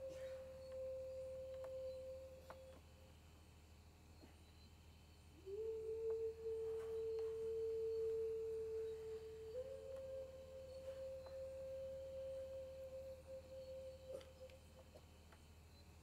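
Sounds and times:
clear steady tone: 0.0s - 16.0s
faint clicks: 0.2s - 1.8s.

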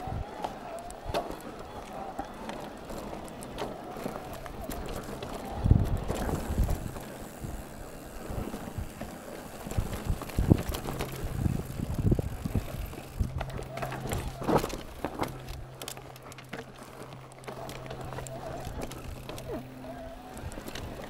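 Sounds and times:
bike rattling over bumps: 0.0s - 21.0s
wind on microphone: 4.5s - 9.0s, 9.6s - 14.8s.

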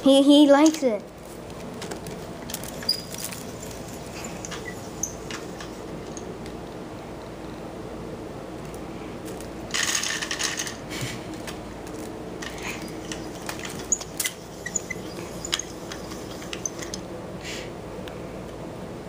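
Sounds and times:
steady low hum: 0.0s - 19.0s
wicker basket creaking: 1.5s - 6.2s, 11.8s - 17.0s.

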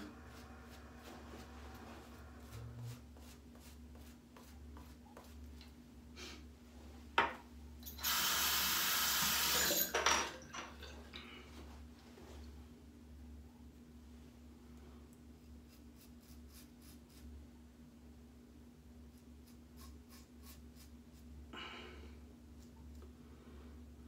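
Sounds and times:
tap water running: 7.8s - 11.2s
razor scraping stubble: 15.6s - 17.3s, 19.1s - 21.2s.

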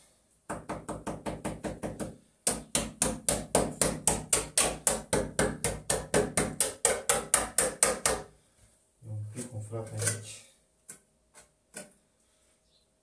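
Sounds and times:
hand tool knocking concrete block: 0.5s - 8.3s.

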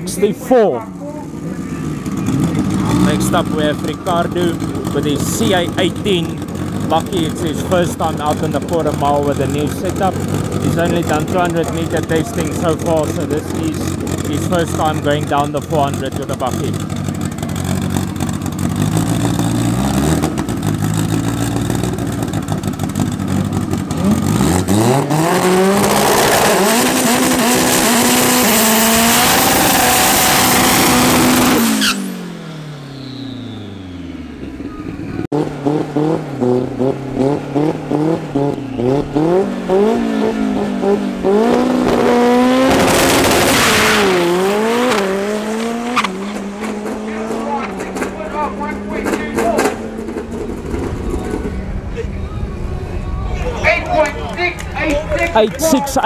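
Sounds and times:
car engine revving: 0.0s - 56.0s
tyres squealing: 31.6s - 32.2s.

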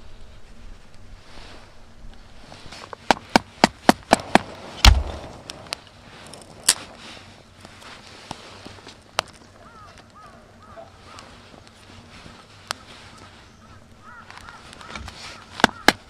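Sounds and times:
sharp wooden knocks: 3.1s - 5.4s
heavy thump: 4.1s - 5.5s.

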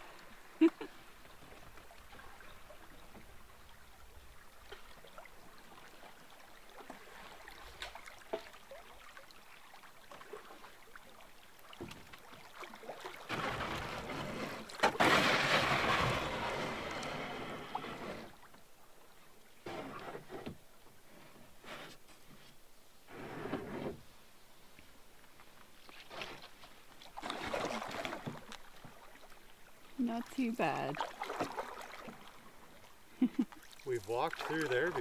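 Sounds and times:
rushing water: 0.0s - 20.8s, 26.1s - 35.0s
canoe knocks: 13.3s - 16.8s.

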